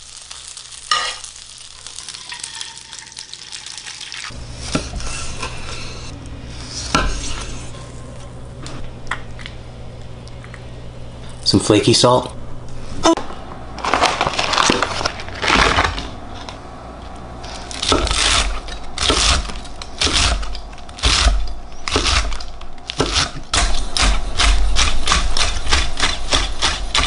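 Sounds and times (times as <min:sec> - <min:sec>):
rustling handling sounds: 0:13.8 - 0:16.6
knife chopping on wooden board: 0:21.0 - 0:27.0.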